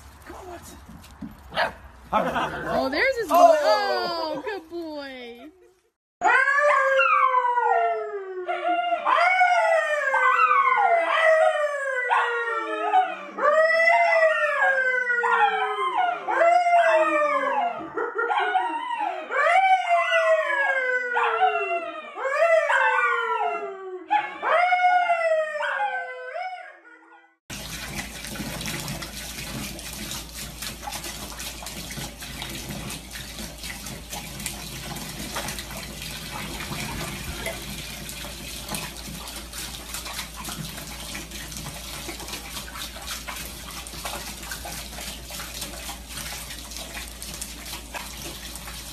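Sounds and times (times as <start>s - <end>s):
man howling: 2.2s - 4.6s
dog howling: 6.2s - 27.1s.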